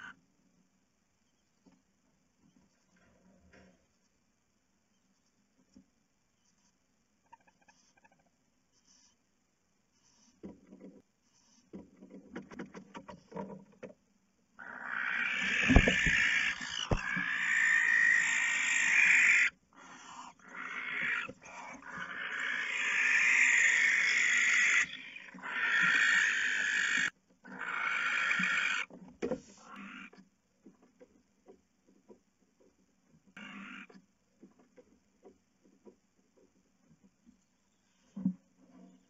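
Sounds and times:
owls hiss-screeching: 14.6 - 28.9
birds thumping against box: 15.6 - 17.2.

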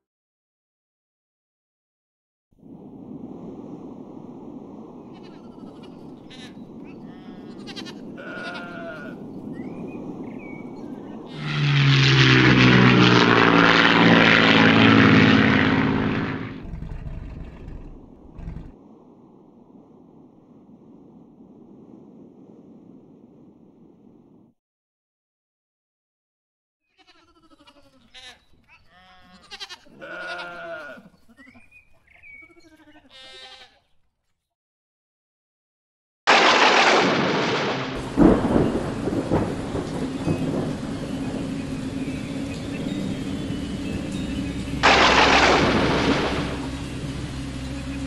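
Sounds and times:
animal bleating: 5.1 - 9.2, 26.9 - 31.6, 32.2 - 34.0
propeller airplane flying past: 11.2 - 18.8, 37.5 - 48.0.

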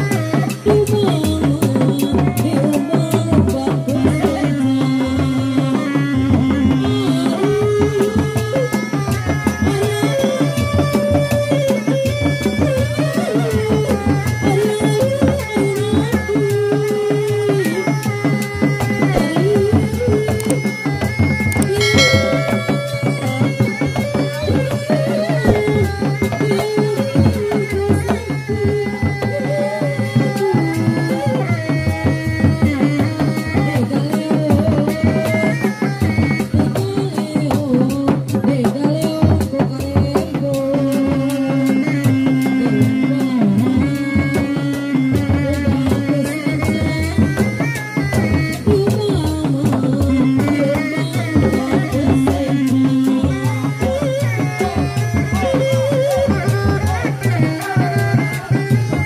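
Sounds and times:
hand drums in fast rhythm: 0.0 - 59.0
sustained melody line: 21.6 - 24.3.

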